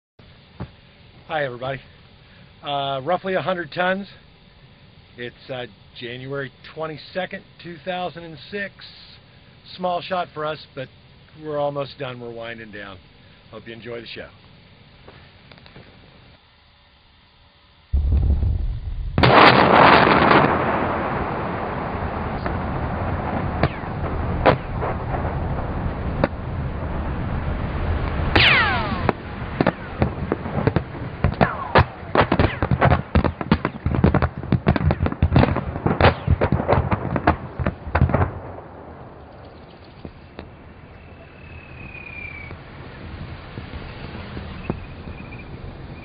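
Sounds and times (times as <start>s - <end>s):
demolition blast boom: 18.0s - 39.4s
sharp cracks and pops: 23.2s - 26.5s, 27.9s - 40.5s
falling whistle: 28.4s - 29.1s, 41.1s - 42.6s.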